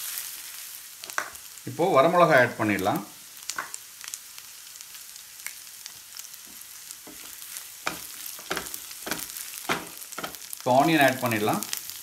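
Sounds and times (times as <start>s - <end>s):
food sizzling in hot oil: 0.0s - 12.0s
spatula scraping a pan: 7.0s - 10.5s.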